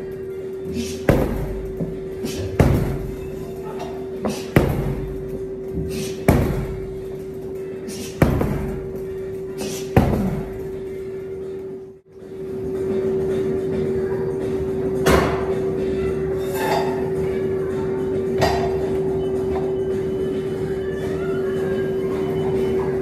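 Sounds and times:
punching bag thuds: 0.8 - 3.3, 4.2 - 7.0, 7.9 - 9.0, 9.6 - 10.7.

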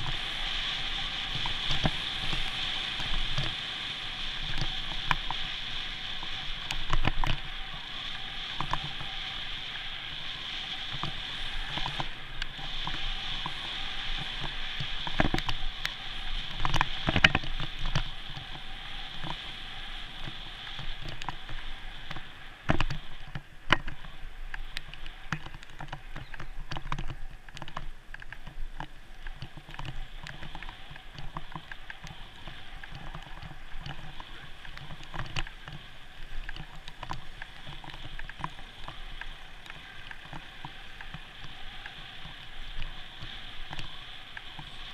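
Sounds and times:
bicycle tyres hissing: 0.0 - 44.9.

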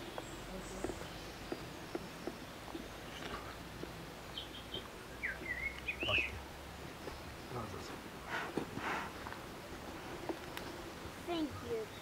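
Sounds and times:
bird chirping and calling: 4.2 - 7.7.

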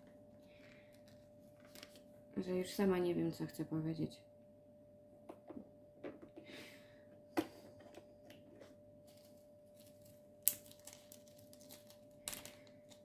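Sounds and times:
plastic rustle: 1.0 - 2.1, 9.0 - 13.0.

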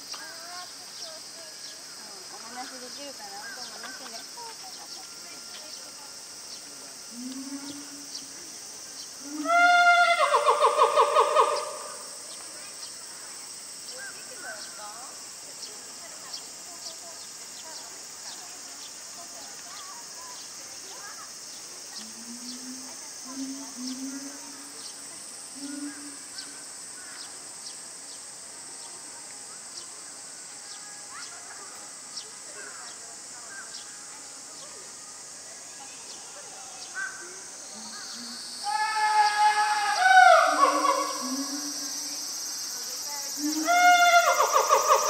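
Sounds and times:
cicada chorus drone: 0.0 - 45.0
steady high hiss: 0.0 - 45.0
animal call with warbling trill: 38.7 - 42.0.

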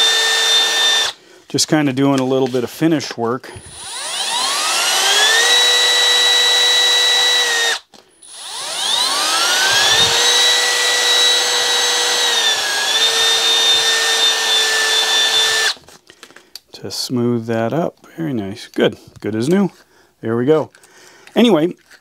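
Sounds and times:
cordless drill motor whining: 0.0 - 1.2, 3.6 - 15.8.

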